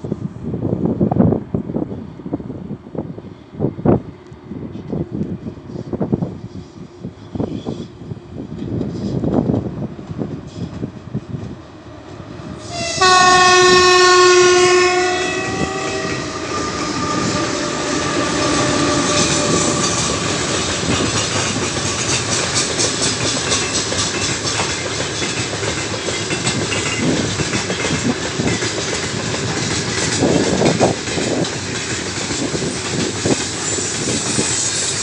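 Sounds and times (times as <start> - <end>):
locomotive horn blast: 12.6 - 19.9
train wheels clattering on rails: 13.8 - 35.0.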